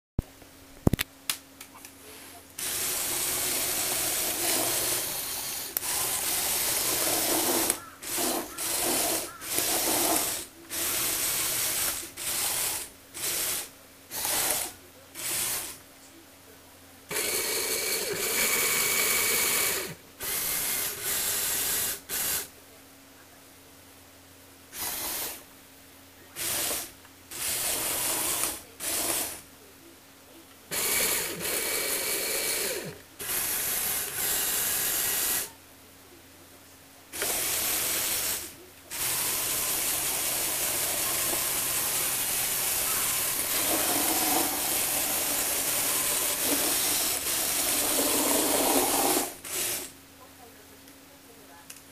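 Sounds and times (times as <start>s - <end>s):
toy vehicle gear motors whirring: 2.6s - 15.8s, 17.1s - 22.5s, 24.7s - 25.5s, 26.3s - 29.4s, 30.7s - 35.6s, 37.1s - 50.0s.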